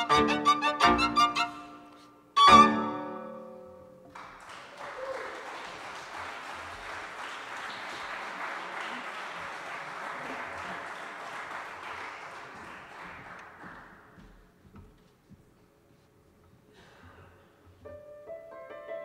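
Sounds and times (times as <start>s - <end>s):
audience applauding: 4.1s - 14.2s.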